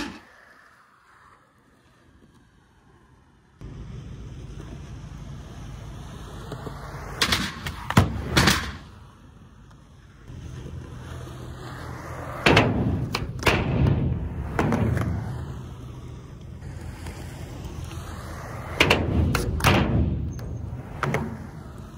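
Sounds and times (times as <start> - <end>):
skateboard clacking and landing: 0.0 - 0.6, 6.3 - 9.0, 11.6 - 15.7, 16.6 - 21.9
skateboard wheels rolling on concrete: 0.0 - 21.9.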